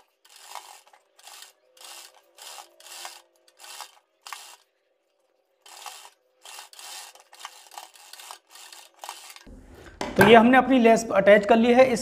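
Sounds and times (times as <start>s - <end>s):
sewing machine stitching: 0.0s - 4.6s, 5.6s - 9.5s.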